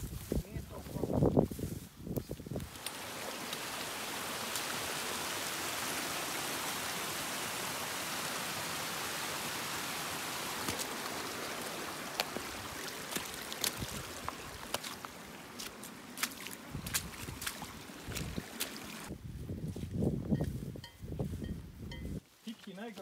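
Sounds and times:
footsteps on wet ground: 0.0s - 4.8s, 10.5s - 23.0s
stream rushing over rocks: 2.7s - 19.1s.

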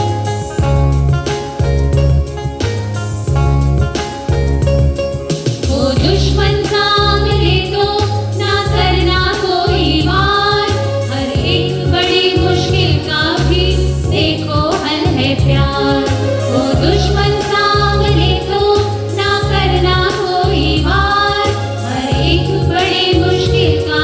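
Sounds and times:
electronic keyboard: 0.0s - 24.0s
women singing together: 5.7s - 24.0s.

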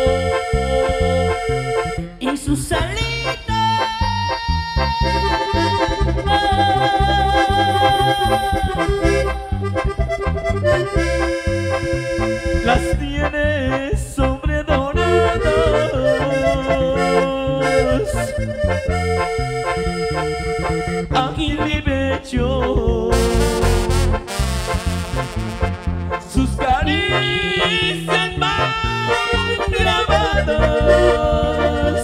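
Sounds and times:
live band playing over pa: 3.0s - 13.8s, 14.7s - 21.8s, 23.0s - 32.0s.

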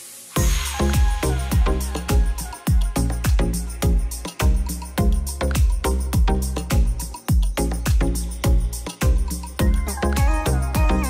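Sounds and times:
background music with kick drum: 0.3s - 11.0s.

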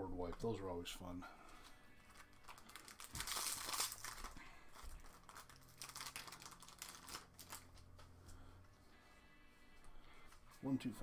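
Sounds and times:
foil wrapper tearing crinkling: 2.1s - 7.9s.

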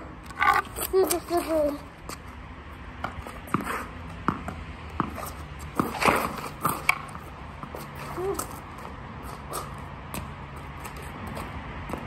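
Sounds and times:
tennis ball bouncing: 2.9s - 8.6s.

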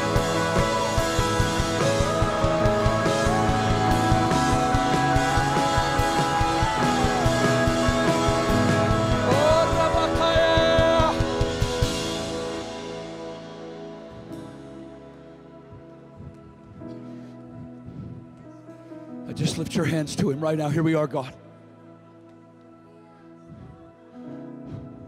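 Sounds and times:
drum kit steady beat: 0.0s - 14.6s
electric guitar gliding notes: 0.0s - 18.7s.

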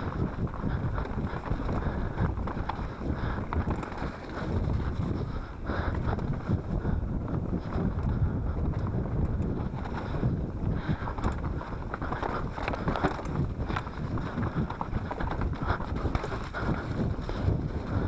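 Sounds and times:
bike rattling over loose rocks: 0.0s - 18.0s
wind buffeting microphone: 0.0s - 18.0s.

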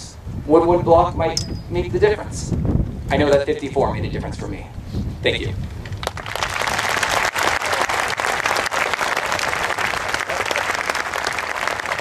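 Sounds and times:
crowd applause: 6.0s - 12.0s.

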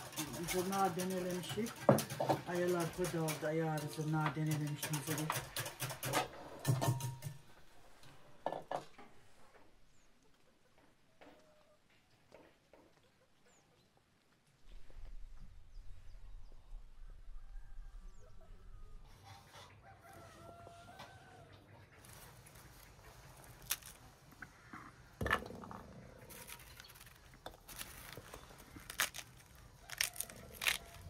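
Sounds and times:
chickens clucking: 8.0s - 13.8s, 18.2s - 28.8s
knife cutting fruit rind: 26.3s - 31.0s.

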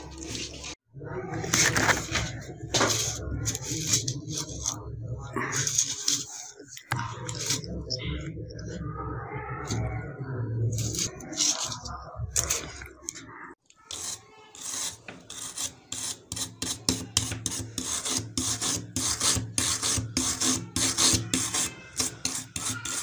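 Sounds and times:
wooden stick rasping on metal: 10.7s - 11.9s, 13.8s - 23.0s.

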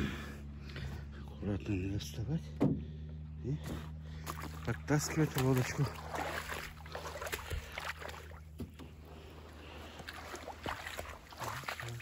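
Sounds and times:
shallow water splashing and sloshing: 2.8s - 12.0s.

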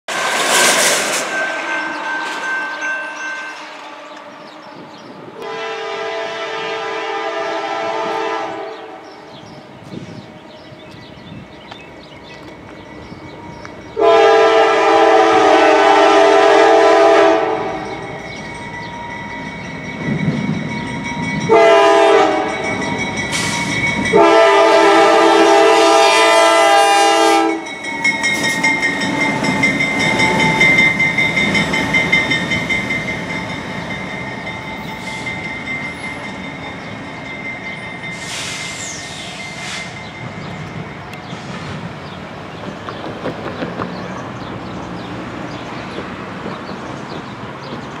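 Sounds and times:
locomotive rumbling over rails: 0.1s - 48.0s
crossing bell ringing: 0.2s - 5.8s, 10.4s - 42.6s
locomotive air horn: 5.4s - 9.0s, 14.0s - 18.0s, 21.5s - 22.6s, 23.3s - 27.7s.

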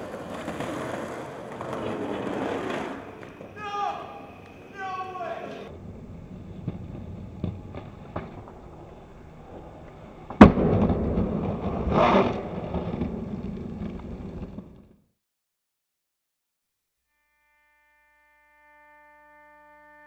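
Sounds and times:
skateboard sharp clack: 0.0s - 3.6s
skateboard wheels rolling on pavement: 0.0s - 15.1s.

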